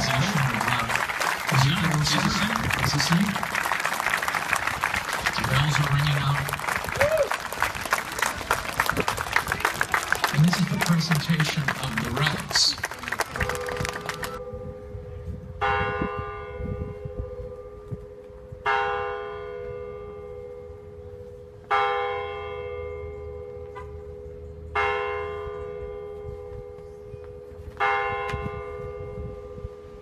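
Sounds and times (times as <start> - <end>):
church bell tolling: 14.4 - 30.0.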